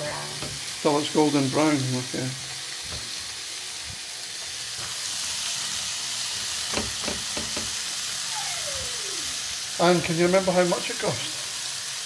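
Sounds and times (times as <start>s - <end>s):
pork sizzling in hot oil: 0.0s - 12.0s.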